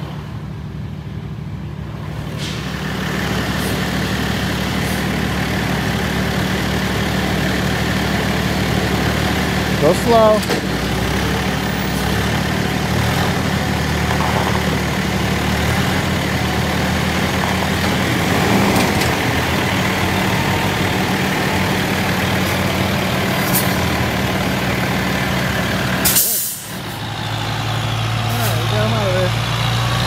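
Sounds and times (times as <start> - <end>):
diesel engines running: 0.0 - 30.0
air brake hiss: 2.4 - 2.8, 26.0 - 26.8.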